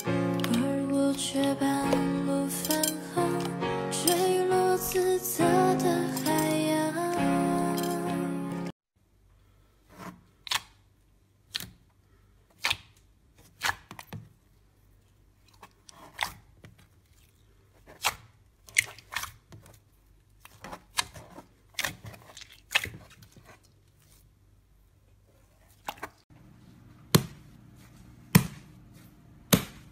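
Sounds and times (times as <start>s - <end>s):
slime squelching and popping: 15.4s - 24.2s.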